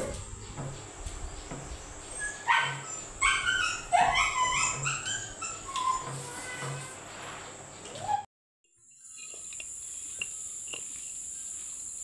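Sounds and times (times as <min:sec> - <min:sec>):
dog whining and yipping: 0:02.2 - 0:06.1.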